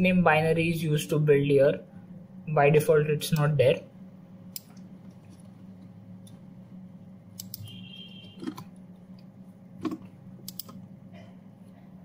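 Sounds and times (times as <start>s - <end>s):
low electrical hum: 0.0s - 12.0s
keyboard and mouse clicks: 9.8s - 10.8s.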